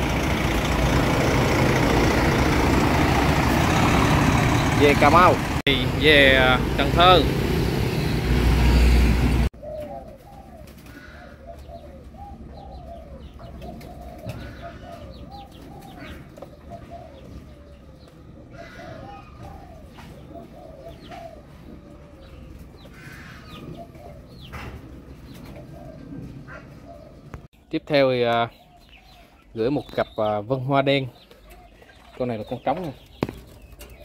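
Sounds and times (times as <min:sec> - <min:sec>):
street traffic: 0:00.0 - 0:34.0
doves cooing: 0:09.5 - 0:27.5, 0:28.5 - 0:34.0.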